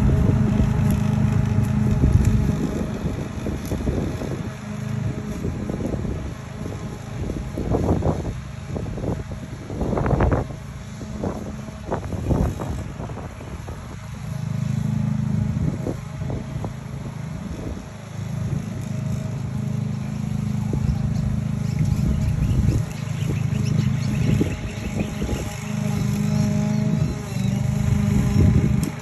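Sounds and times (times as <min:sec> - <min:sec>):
lawn mower engine cutting grass: 0:00.0 - 0:29.0.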